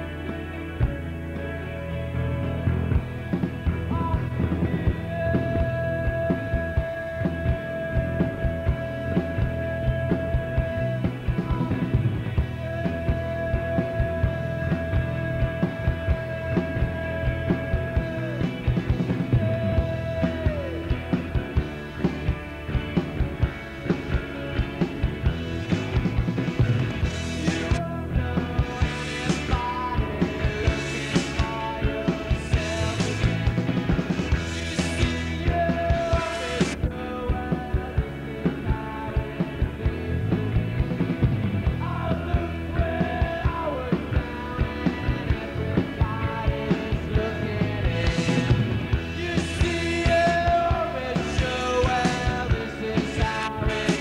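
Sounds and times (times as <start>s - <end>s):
rock band playing: 0.0s - 54.0s
person singing: 3.9s - 21.3s, 27.3s - 33.7s, 34.8s - 39.6s, 41.6s - 54.0s.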